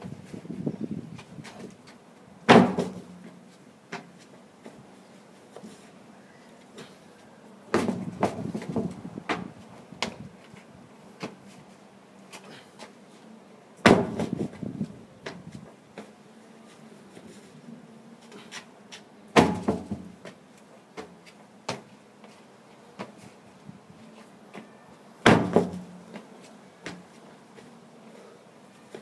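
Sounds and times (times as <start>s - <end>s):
heavy tyre landing thud: 2.5s - 3.2s, 7.7s - 9.5s, 13.8s - 14.5s, 19.4s - 20.2s, 25.2s - 25.9s.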